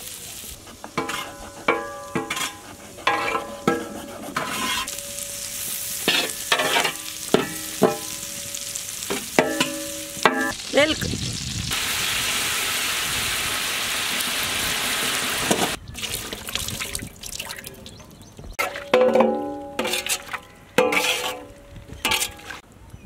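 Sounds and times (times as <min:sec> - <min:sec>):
metal ladle clinking against pot: 0:18.6 - 0:22.6.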